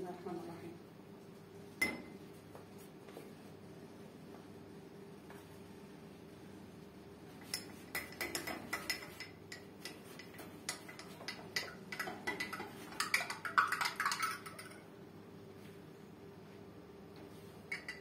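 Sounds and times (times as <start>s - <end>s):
spoon clinking against a glass: 10.2s - 14.8s, 17.7s - 18.0s.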